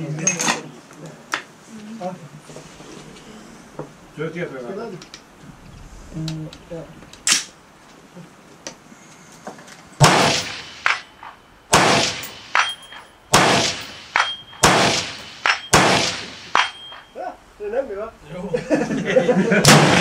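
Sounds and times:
fainter distant gunshots: 10.0 - 12.7, 13.3 - 17.0, 19.6 - 20.0
loud rifle shots ringing: 10.0 - 17.1, 19.6 - 20.0.

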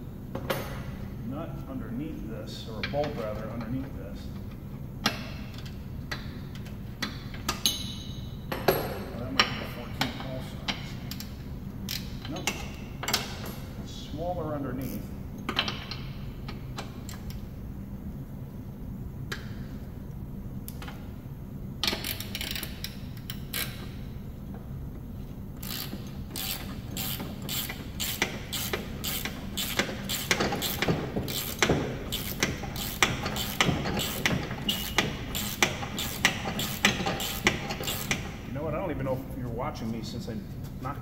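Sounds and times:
ratcheting wrench clicking: 21.8 - 24.0, 25.6 - 38.4.

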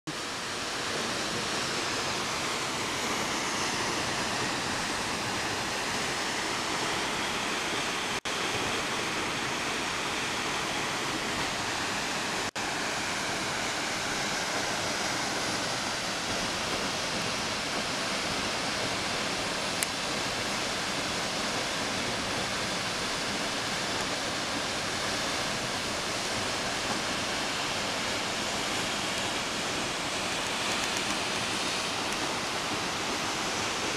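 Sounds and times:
waterfall rushing: 0.1 - 33.9.

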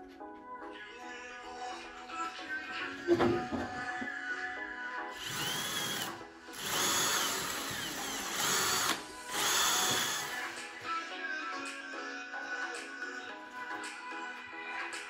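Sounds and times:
cordless drill boring into wall: 5.2 - 10.7.

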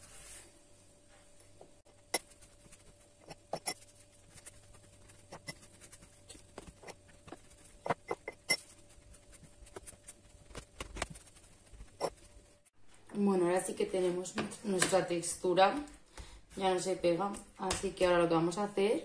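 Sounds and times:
hands kneading dough: 0.0 - 12.7.

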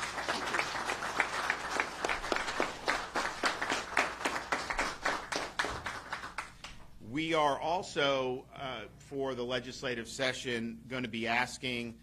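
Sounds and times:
small group applauding: 0.0 - 6.9.

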